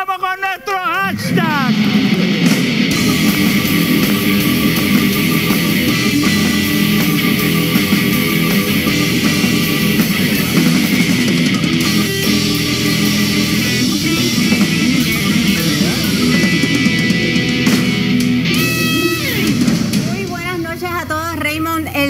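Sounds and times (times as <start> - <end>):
electric guitar rock music: 0.0 - 22.0.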